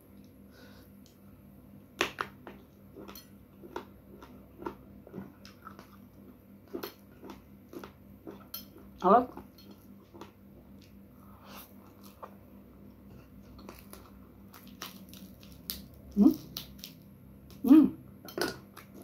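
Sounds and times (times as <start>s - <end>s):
chewing food: 2.5s - 11.0s.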